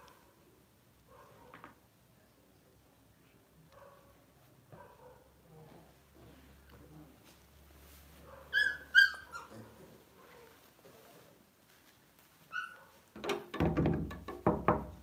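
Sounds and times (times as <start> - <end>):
dog yelping: 8.3 - 10.5, 12.5 - 13.0
rustling and handling knocks: 13.1 - 15.0.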